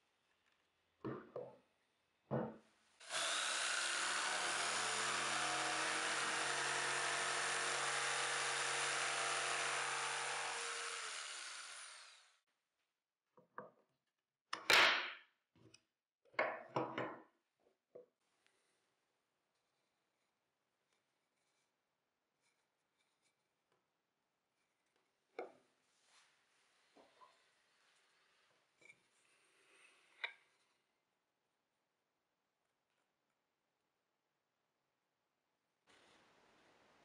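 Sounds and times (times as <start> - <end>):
wooden knocks: 2.3 - 2.6
electric jigsaw cutting wood: 3.0 - 12.4.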